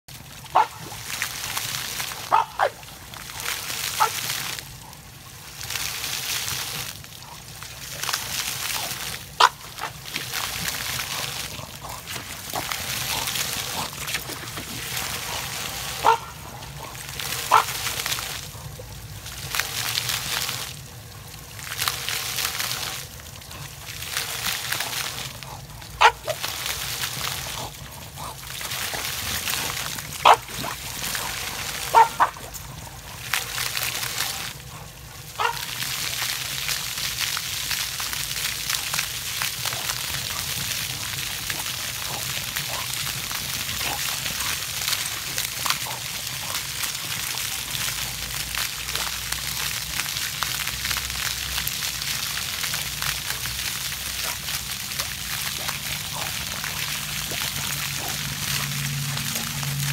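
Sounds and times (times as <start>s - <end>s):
water spraying and splashing: 0.0s - 59.9s
dog barking: 0.5s - 0.8s, 2.3s - 2.8s, 16.0s - 17.7s, 26.0s - 26.4s, 30.2s - 30.5s, 31.9s - 32.4s, 35.4s - 35.7s.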